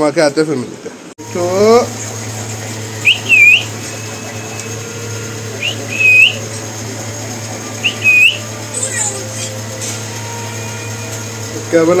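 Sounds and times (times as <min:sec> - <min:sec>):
steady low hum: 0:01.9 - 0:09.7
parrot whistling: 0:03.0 - 0:03.9, 0:05.6 - 0:06.6, 0:07.8 - 0:09.2.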